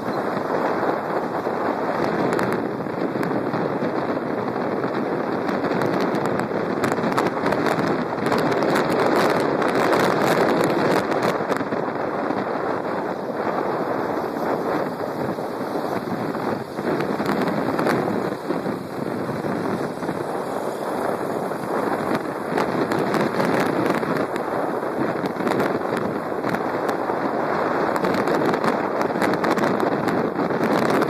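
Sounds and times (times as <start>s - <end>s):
wind rushing over microphone: 0.0s - 31.0s
crackling pops: 14.4s - 27.0s.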